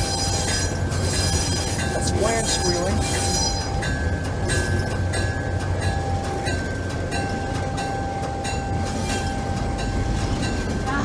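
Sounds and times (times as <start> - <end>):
diesel engine drone: 0.0 - 11.0
locomotive bell ringing: 0.0 - 11.0
wheel flanges squealing on rails: 0.0 - 11.0.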